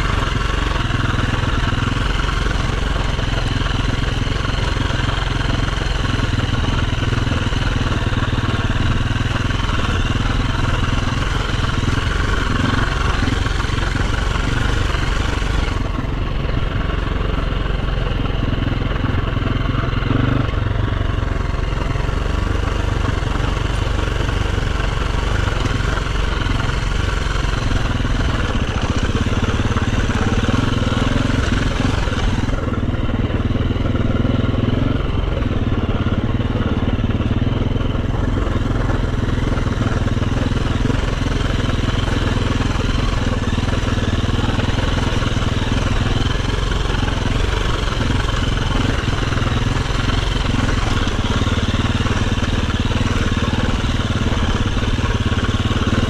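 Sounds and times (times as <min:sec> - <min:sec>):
dirt bike engine running: 0:00.0 - 0:56.0.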